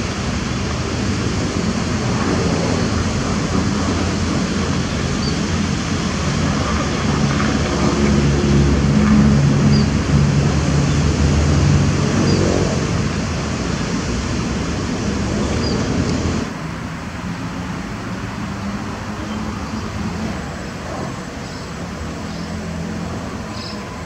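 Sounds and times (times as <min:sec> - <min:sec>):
diesel engine humming: 0:00.0 - 0:16.6.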